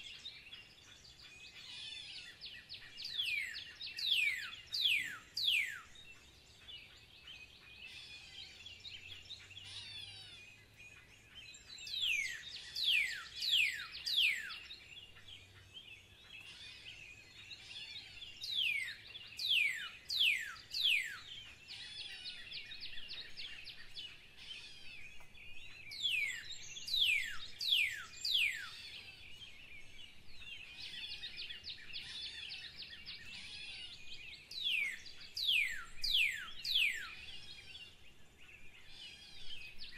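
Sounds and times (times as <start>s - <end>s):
birds twittering: 0.0s - 39.9s.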